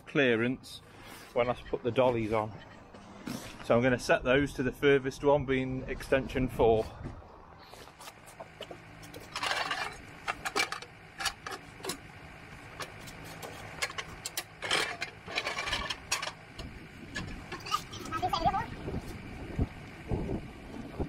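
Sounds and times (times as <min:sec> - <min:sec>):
metal scraping: 0:07.9 - 0:18.4
metal clicks and clanks: 0:08.6 - 0:12.0, 0:12.8 - 0:17.7.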